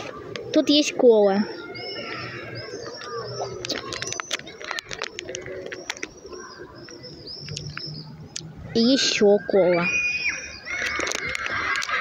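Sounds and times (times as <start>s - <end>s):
birds chirping: 0.0s - 12.0s
plastic bag crinkling: 3.6s - 6.1s.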